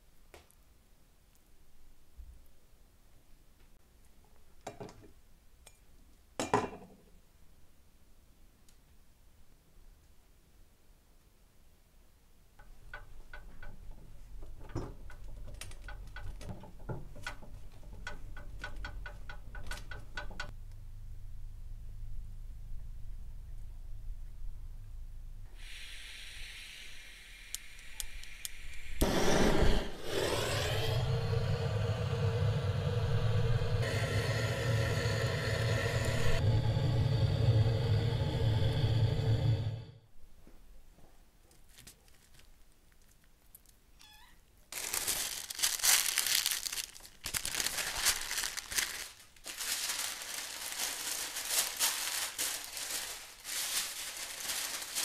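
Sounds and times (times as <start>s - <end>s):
gas burner whoosh and hiss: 25.6s - 40.0s
parchment paper crinkling: 41.5s - 43.8s, 44.7s - 55.0s.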